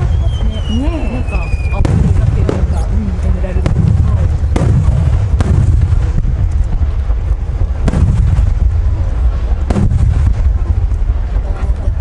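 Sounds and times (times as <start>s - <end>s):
fireworks bursting: 0.0s - 12.0s
low rumble of booms: 0.0s - 12.0s
sharp bangs with echo: 1.7s - 6.5s, 7.8s - 8.8s, 9.6s - 10.7s.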